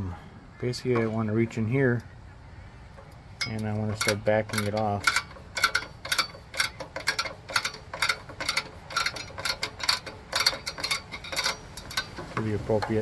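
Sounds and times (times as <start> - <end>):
sharp metal clicks: 2.9 - 13.0.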